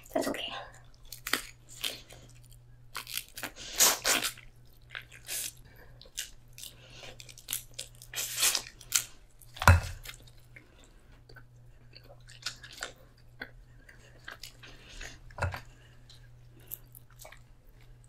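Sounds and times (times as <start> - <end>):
chewing and crunching: 0.0 - 18.0.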